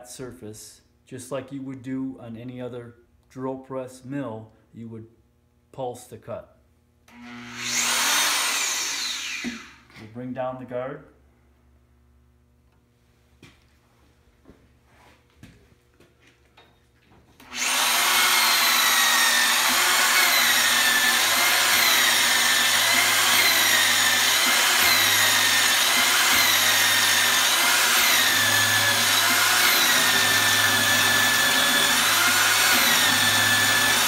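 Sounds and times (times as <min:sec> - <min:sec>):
hole saw cutting metal: 0:07.1 - 0:09.8, 0:17.4 - 0:34.0.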